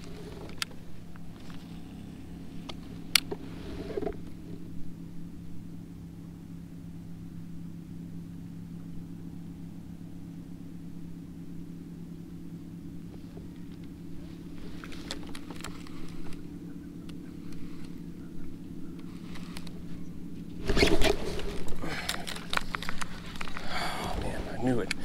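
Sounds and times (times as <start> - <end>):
kayak drive humming: 0.0 - 25.0
rustle of handling: 13.1 - 18.2, 18.9 - 25.0.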